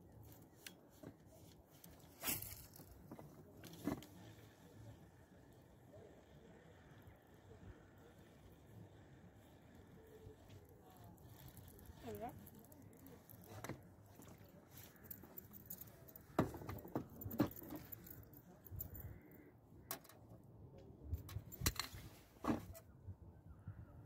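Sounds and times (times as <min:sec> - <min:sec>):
fishing tackle clicking and knocking: 0:10.4 - 0:20.3.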